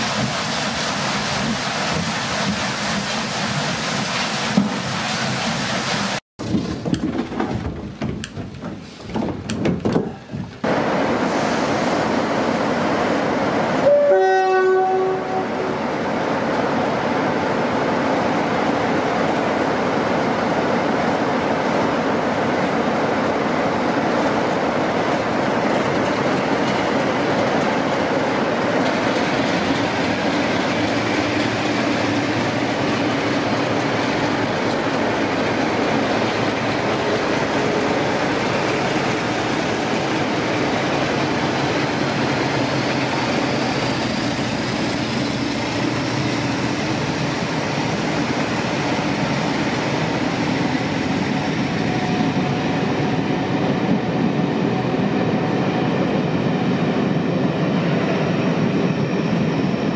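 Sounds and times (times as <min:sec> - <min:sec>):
train running on rails: 0:00.0 - 0:59.9
train two-note warning horn: 0:13.8 - 0:15.8.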